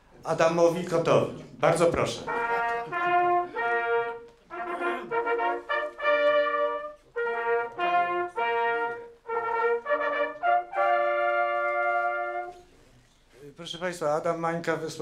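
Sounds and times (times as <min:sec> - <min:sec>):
brass horn fanfare: 0:02.1 - 0:12.7.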